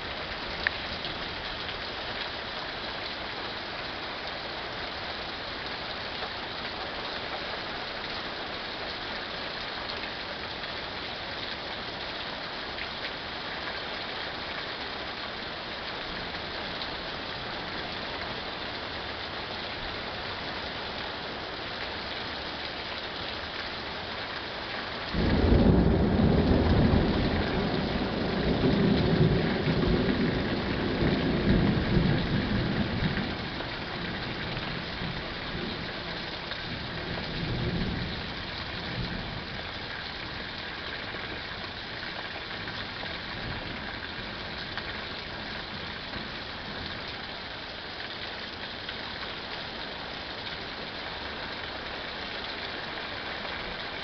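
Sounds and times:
steady rain falling: 0.0s - 54.0s
thunder rumbling: 25.2s - 33.4s.

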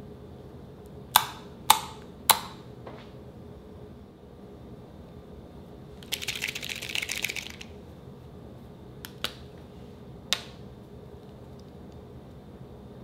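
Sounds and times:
marker mixing ball rattling: 6.0s - 7.7s.

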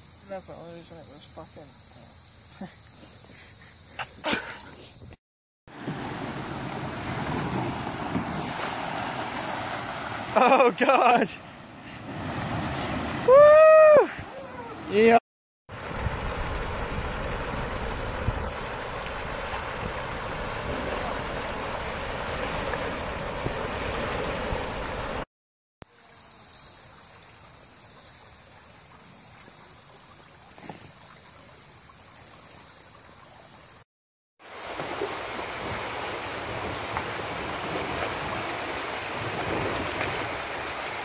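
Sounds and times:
water rushing over a weir: 5.7s - 25.3s, 34.4s - 41.0s.

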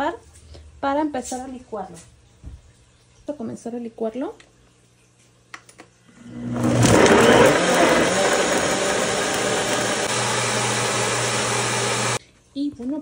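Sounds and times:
blender motor chopping: 6.2s - 12.2s.

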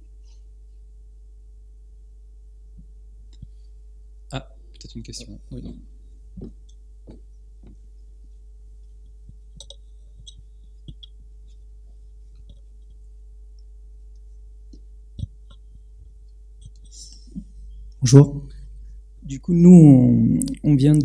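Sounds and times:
steady low hum: 0.0s - 21.0s
faint clicks and knocks: 5.6s - 8.1s, 8.8s - 17.2s.

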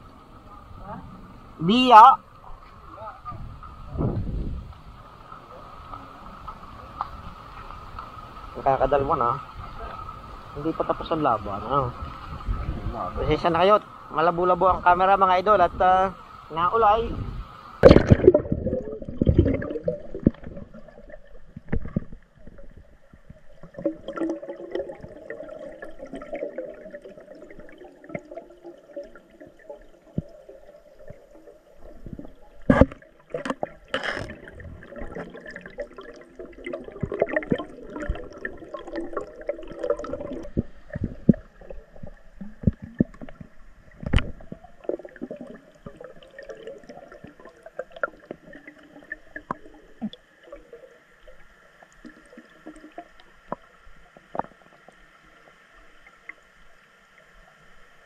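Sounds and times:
underwater gurgling and bubbling: 17.1s - 55.0s.

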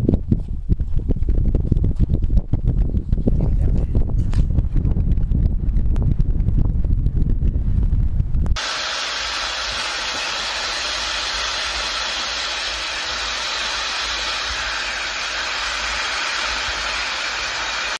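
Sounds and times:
wind buffeting microphone: 0.0s - 8.6s
pot boiling: 8.6s - 17.9s.

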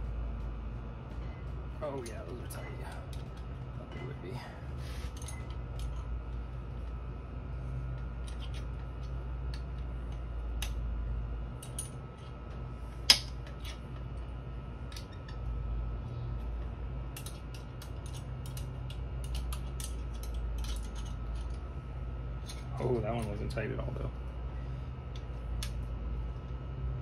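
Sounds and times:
steady low hum: 0.0s - 27.0s
metallic clicks of hand tools: 17.2s - 21.6s.

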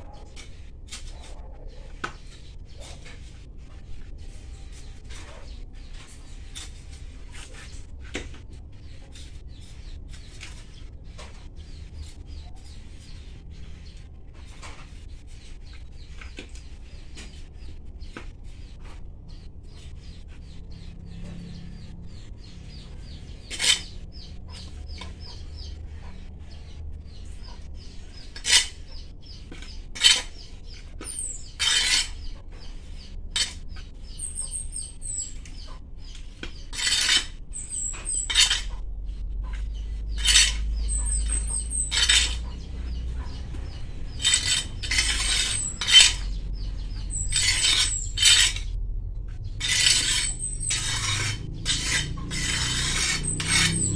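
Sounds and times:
small birds chirping: 0.0s - 53.9s
trowel scooping soil: 28.2s - 35.4s, 36.4s - 38.8s, 39.5s - 43.0s, 43.6s - 48.7s, 49.6s - 53.9s
trowel clinking on clay pot: 36.5s - 38.8s, 39.5s - 48.7s, 49.6s - 53.9s.

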